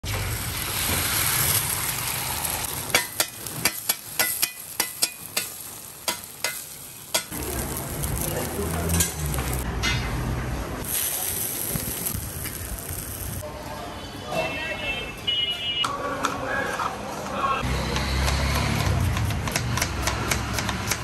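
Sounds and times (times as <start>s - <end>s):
eggs sizzling: 0.0s - 9.7s, 10.8s - 13.4s.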